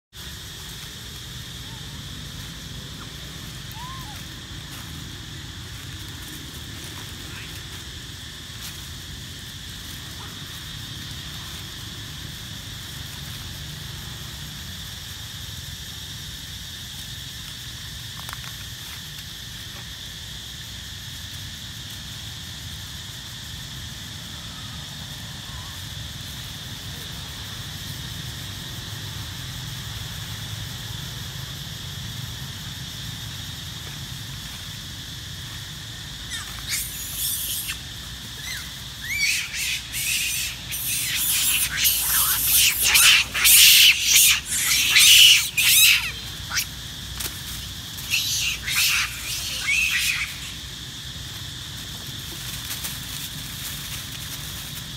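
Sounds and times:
insects droning: 0.0s - 54.9s
monkey screaming: 3.0s - 4.4s, 7.2s - 7.6s, 36.2s - 46.7s, 48.0s - 50.6s.

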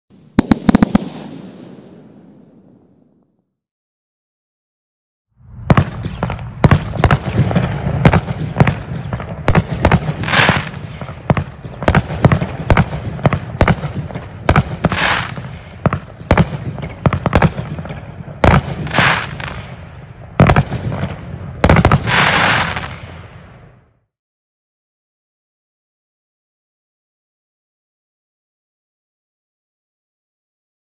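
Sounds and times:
firework bangs: 0.1s - 3.3s, 5.6s - 23.8s
firework stars hissing: 0.3s - 3.1s.

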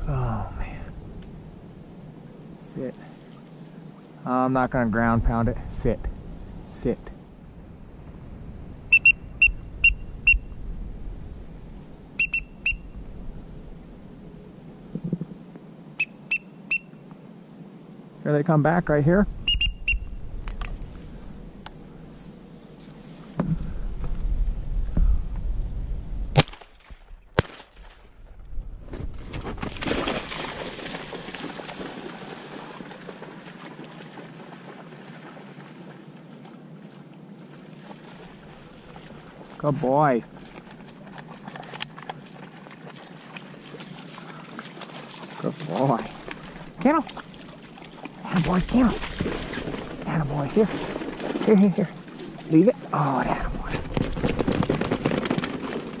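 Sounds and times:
duck whistle peeps: 8.9s - 10.5s, 12.2s - 12.9s, 19.4s - 20.1s
shotgun shots: 26.3s - 28.1s
dog splashing through water: 29.7s - 35.8s, 40.3s - 52.5s.

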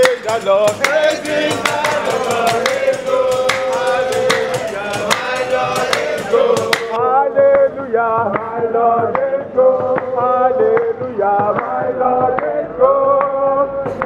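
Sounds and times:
rhythmic tambourine beat: 0.0s - 7.0s.

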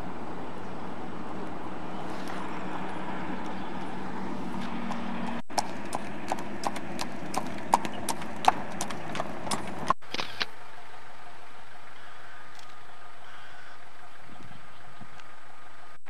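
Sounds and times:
horse hooves clip-clopping on asphalt: 2.4s - 10.4s.

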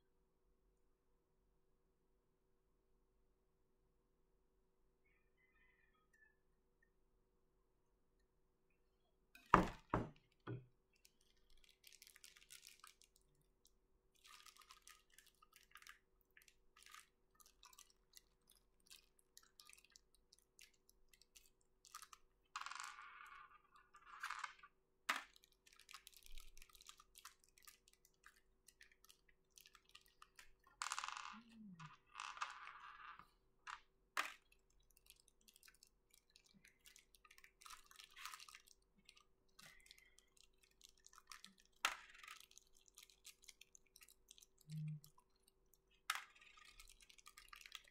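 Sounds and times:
hard plastic knocking on desk: 9.6s - 10.6s
plastic bags crinkling: 11.0s - 13.3s, 14.2s - 16.0s, 34.2s - 44.7s
small plastic pieces clicking: 24.0s - 47.9s.

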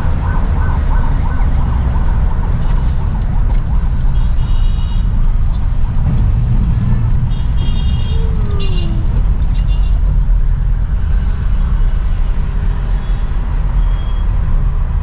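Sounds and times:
bus engine and road noise: 0.0s - 15.0s
vehicle horn: 7.3s - 8.8s.

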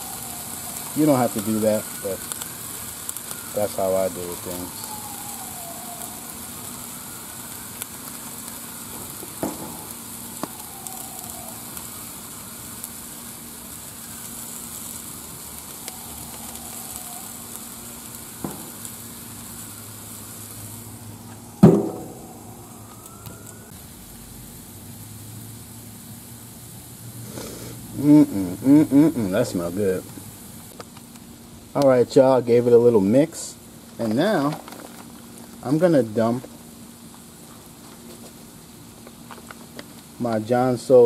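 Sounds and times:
faint siren: 0.0s - 24.3s
vegetables sizzling on griddle: 0.0s - 41.0s
sharp knock: 21.6s - 22.2s.

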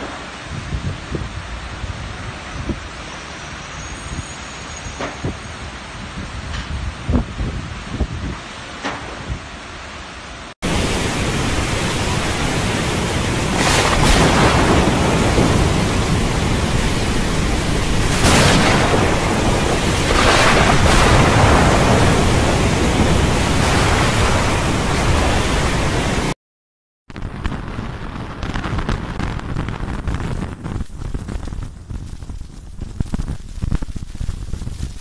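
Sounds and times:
heavy rain: 0.0s - 26.4s
wind: 0.0s - 26.4s, 27.1s - 35.0s.

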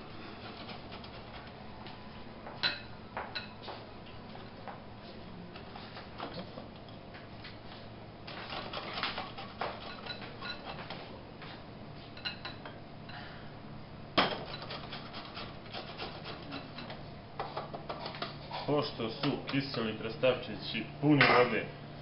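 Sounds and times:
grating on metal grater: 8.4s - 10.0s, 14.5s - 16.9s.

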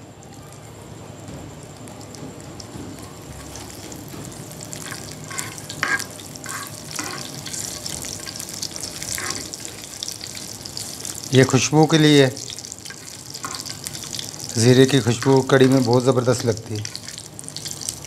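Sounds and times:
seeds sizzling in oil: 1.4s - 18.0s
metal spoon scraping pan: 4.7s - 9.6s.

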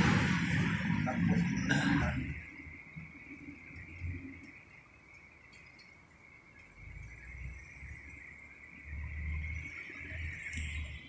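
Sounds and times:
low rumble: 0.0s - 4.5s
insects droning: 0.0s - 11.0s.

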